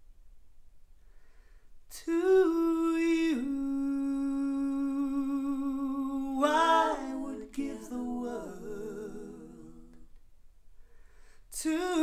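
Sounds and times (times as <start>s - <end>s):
recorded female vocal music: 2.0s - 10.1s.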